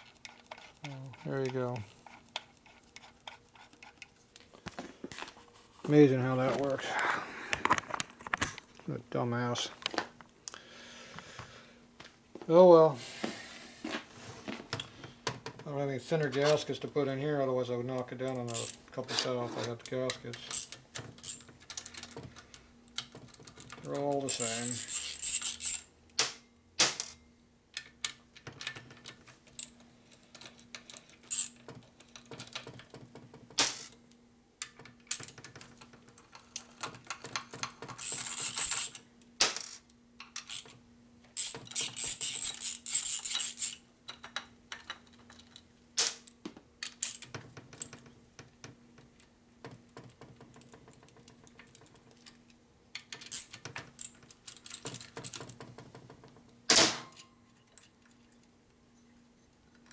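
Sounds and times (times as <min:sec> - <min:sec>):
faint steady hum: 0:00.0 - 0:59.9
metallic clinks of tools: 0:24.3 - 0:25.8.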